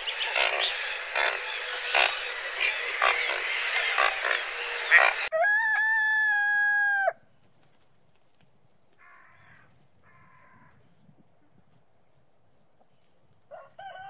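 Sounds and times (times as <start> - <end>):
rooster crowing: 5.2 - 7.2, 13.5 - 14.0.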